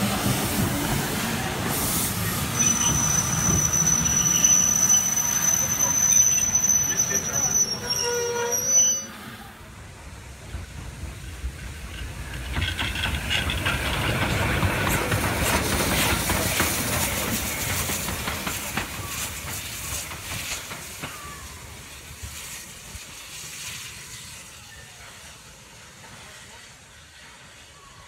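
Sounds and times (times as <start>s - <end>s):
steam hissing: 0.0s - 28.0s
locomotive wheels clanking: 10.6s - 21.3s.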